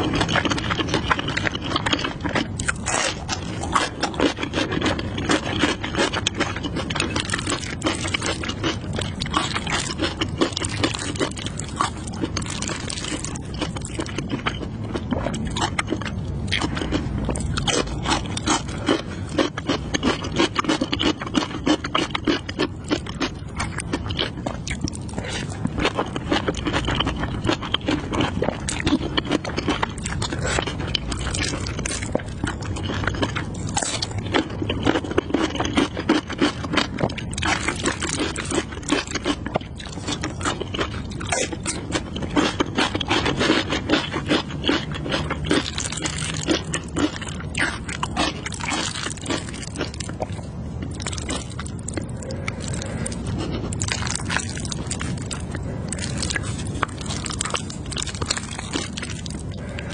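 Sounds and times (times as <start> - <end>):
person chewing noodles: 0.0 - 59.9.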